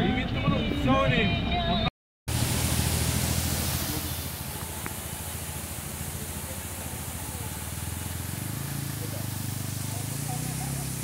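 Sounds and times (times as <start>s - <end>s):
motorcycle engine at low revs: 2.3s - 11.0s
waterfall rushing hiss: 2.3s - 11.0s.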